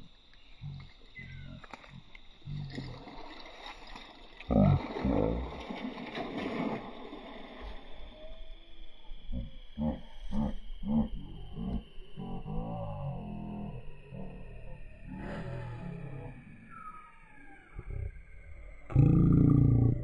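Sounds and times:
net splashing into water: 2.7 - 7.8.

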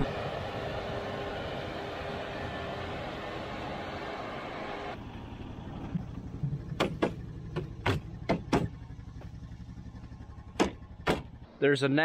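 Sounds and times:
tractor engine idling: 5.0 - 11.8.

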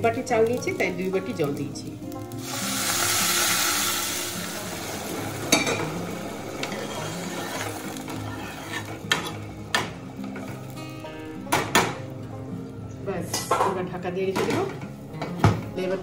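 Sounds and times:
water sizzling in hot pan: 0.0 - 12.2
spatula stirring pot: 6.6 - 9.4.

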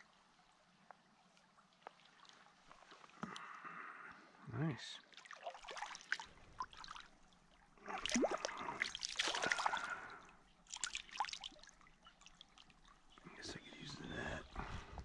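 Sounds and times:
water splashing: 5.1 - 7.2, 7.8 - 13.0.

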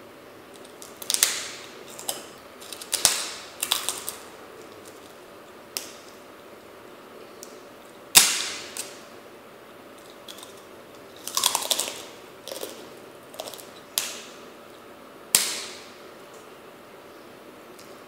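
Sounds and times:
cracker snapping: 0.5 - 6.2, 7.4 - 9.1, 10.0 - 14.4, 15.3 - 16.5
dry crunching while chewing: 0.5 - 6.2, 10.0 - 14.4.

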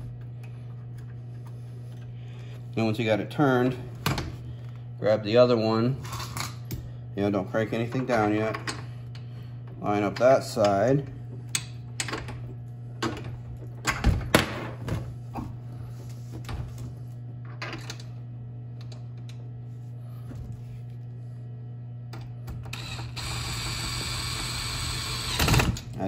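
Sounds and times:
steady low hum: 0.0 - 26.0
cordless drill running: 22.7 - 25.8.

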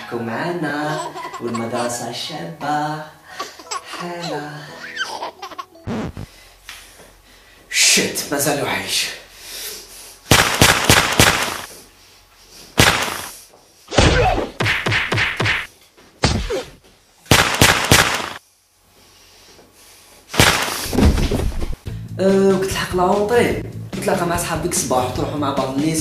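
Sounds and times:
whacking and rustling bursts: 10.3 - 11.8, 12.8 - 18.4, 20.3 - 21.8.

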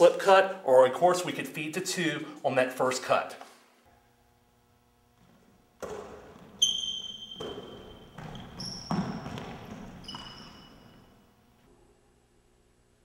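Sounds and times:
basketball bouncing on hardwood floor: 5.2 - 11.1
shoe squeaks: 5.8 - 11.3.

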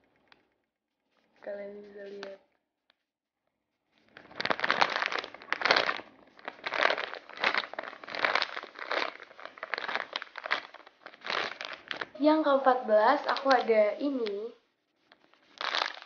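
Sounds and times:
plastic bag crinkling: 4.0 - 16.0.

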